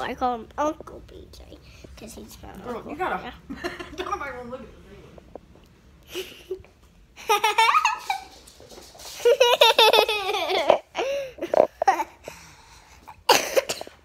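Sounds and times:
girl giggling: 6.1s - 8.4s, 9.2s - 12.2s.

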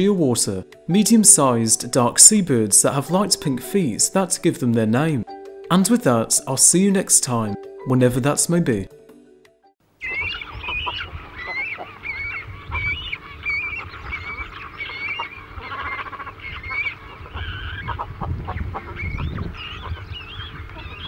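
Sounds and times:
flock of birds calling: 10.0s - 21.0s.

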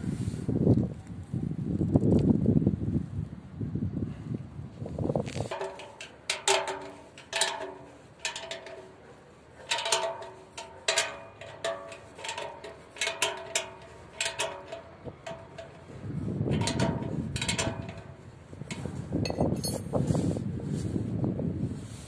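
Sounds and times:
metal bracket knocking and ringing: 5.5s - 19.9s.

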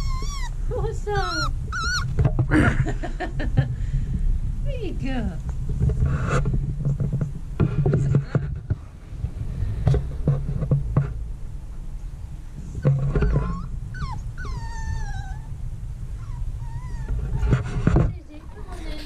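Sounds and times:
puppy whimpering: 0.0s - 2.2s, 12.8s - 15.6s, 16.2s - 19.0s.

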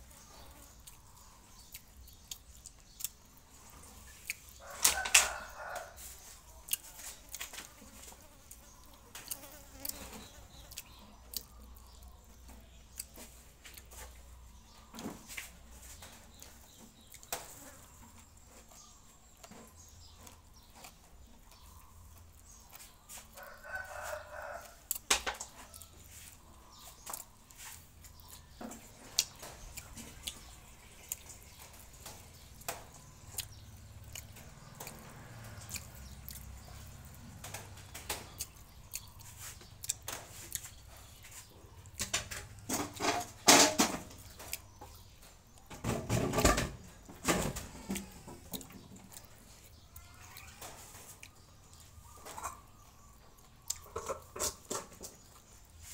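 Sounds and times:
man chewing and lip-smacking: 0.7s - 4.6s, 6.2s - 7.4s, 10.6s - 14.6s, 25.8s - 42.1s, 44.2s - 45.7s, 47.9s - 54.3s.

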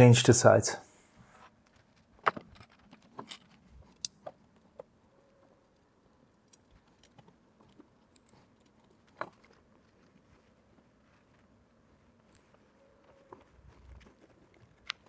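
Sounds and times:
small metallic clinks: 2.2s - 4.9s, 5.7s - 9.6s.

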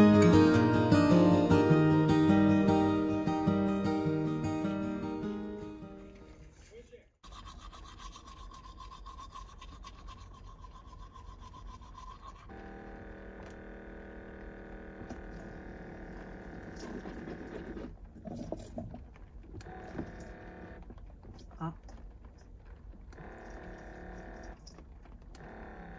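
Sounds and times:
toothbrush scrubbing: 7.2s - 12.5s
electric water pump whining: 11.6s - 25.9s.

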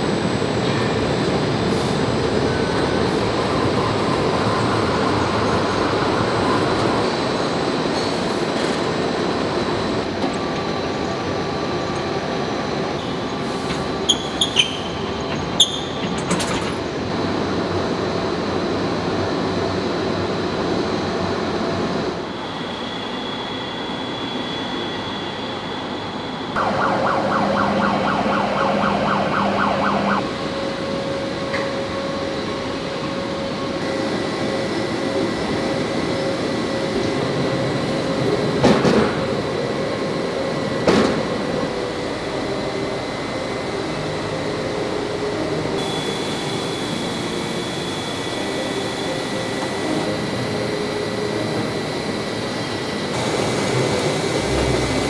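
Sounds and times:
machinery hum and hiss: 0.0s - 55.0s
high whining tones: 22.3s - 30.5s.

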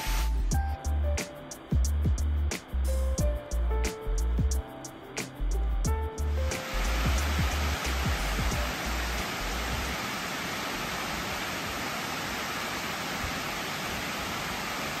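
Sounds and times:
low music notes: 0.0s - 9.9s
water rushing over spillway: 6.4s - 15.0s.

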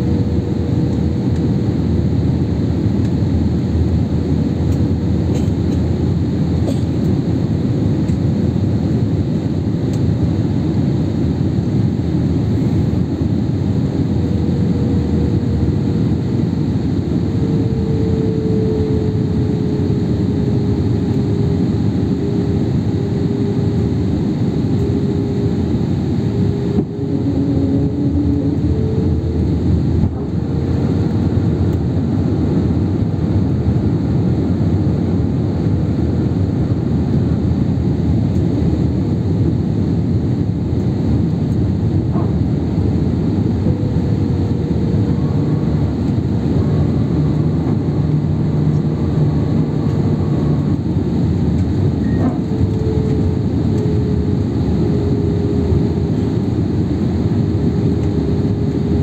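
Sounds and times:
airliner cabin engine and air noise: 0.0s - 59.0s
faint steady hum: 0.0s - 59.0s.

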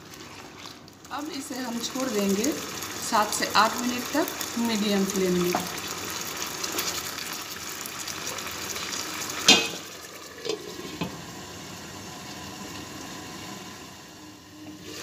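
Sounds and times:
wooden spatula stirring: 0.0s - 1.1s
food sizzling in a pan: 0.0s - 15.0s
glass lid clanking on pan: 9.5s - 9.9s.

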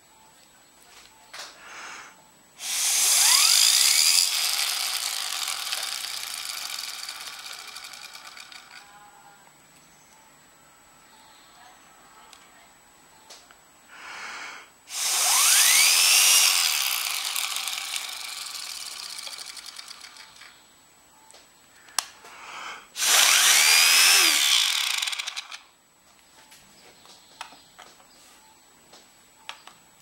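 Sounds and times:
plastic gears whining: 2.0s - 9.2s, 14.9s - 20.6s, 23.0s - 25.7s
gears ticking rattle: 2.8s - 8.9s, 15.7s - 20.5s.

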